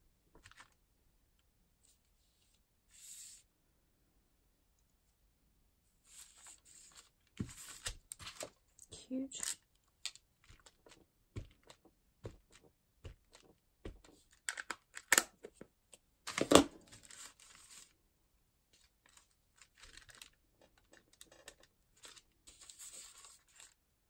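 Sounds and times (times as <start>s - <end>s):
thin paper rustling: 0.4s - 0.8s, 6.1s - 8.6s, 9.4s - 14.4s, 16.3s - 18.0s, 18.8s - 23.8s.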